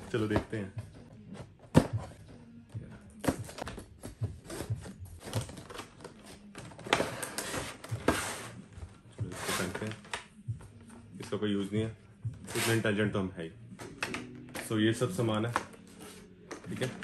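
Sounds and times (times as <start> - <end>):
plastic tray scraping out of box: 9.2 - 10.0
packaging clicks and taps: 13.8 - 17.0.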